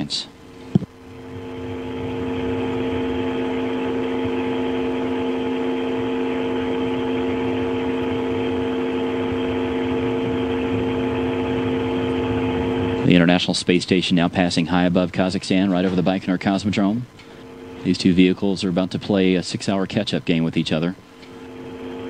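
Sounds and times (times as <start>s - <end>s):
machinery hum: 0.0s - 22.0s.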